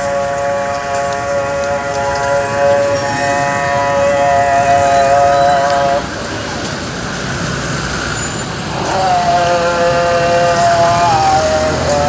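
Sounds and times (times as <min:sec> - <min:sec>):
high-pitched droning tone: 0:00.0 - 0:06.3
street noise: 0:00.0 - 0:12.0.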